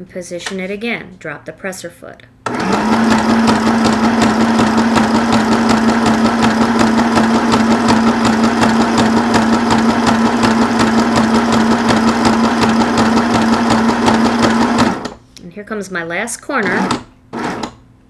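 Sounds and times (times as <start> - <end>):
sewing machine motor hum: 2.5 - 15.2, 16.6 - 17.8.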